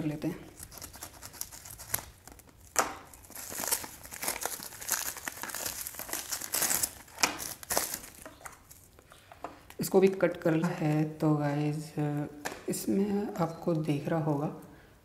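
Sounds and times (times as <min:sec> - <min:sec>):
packaging crinkling and tearing: 0:00.4 - 0:09.1.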